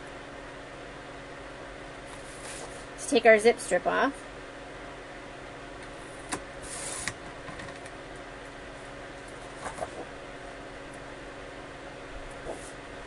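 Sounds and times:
knocks of paper handling: 9.4 - 10.1.

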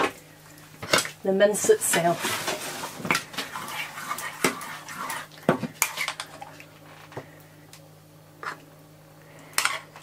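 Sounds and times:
spoon scraping in saucepan: 2.2 - 6.4, 9.6 - 10.0.

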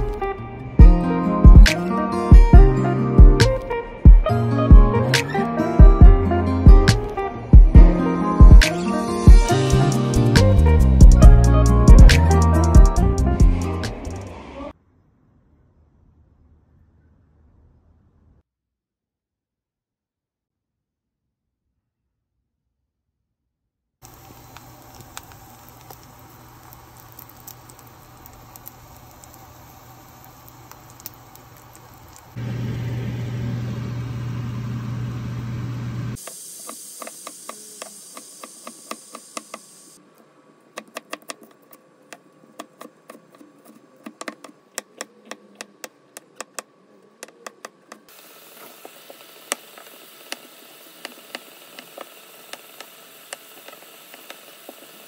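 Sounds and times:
food sizzling in a frying pan: 24.0 - 32.7, 36.2 - 40.0, 48.1 - 55.0.

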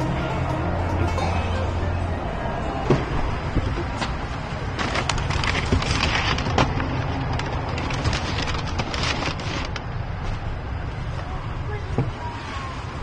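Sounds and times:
paper and plastic bags rustling: 4.2 - 10.6.

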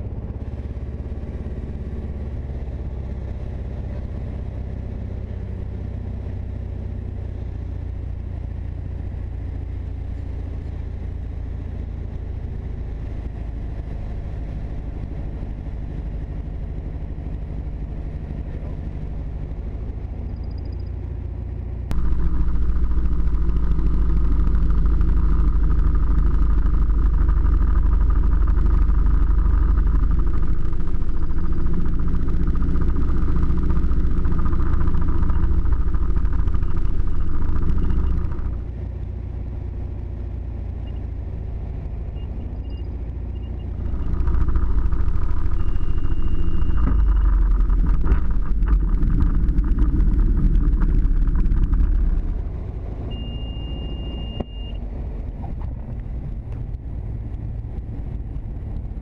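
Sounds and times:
propeller plane engine droning: 0.0 - 59.0.

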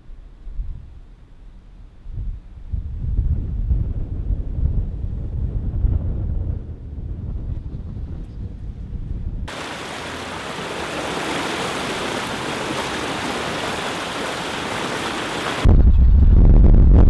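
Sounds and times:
tyre spraying through floodwater: 9.5 - 15.7
low rumble: 15.6 - 17.0.

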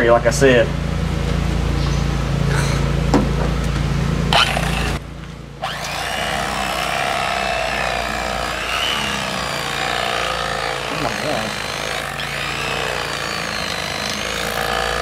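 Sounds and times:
electric knife buzzing cut: 4.3 - 5.0, 5.6 - 15.0.

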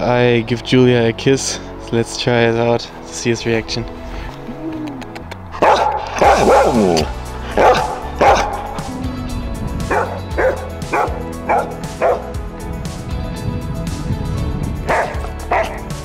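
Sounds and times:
dog barking and yipping: 5.6 - 8.8, 9.9 - 12.3, 14.9 - 15.9.

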